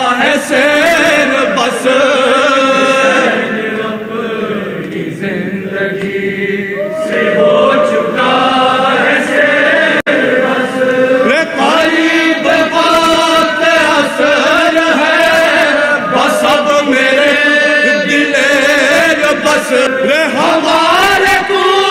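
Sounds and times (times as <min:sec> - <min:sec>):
male chorus chanting: 0:00.0 - 0:21.9
lead voice chanting: 0:06.6 - 0:09.7.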